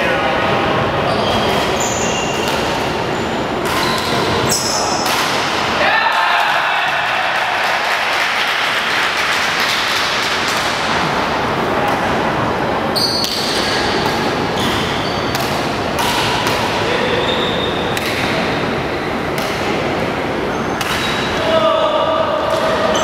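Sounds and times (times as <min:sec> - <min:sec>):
murmur of voices: 0:00.0 - 0:23.0
shoes squeaking on wooden court: 0:01.1 - 0:05.1, 0:12.9 - 0:18.3, 0:20.3 - 0:21.4, 0:22.6 - 0:23.0.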